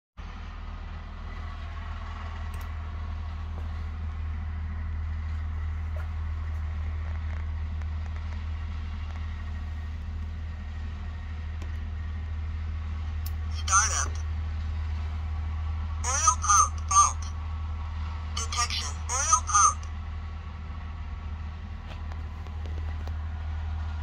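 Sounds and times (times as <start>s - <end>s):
low mechanical hum: 0.2s - 24.0s.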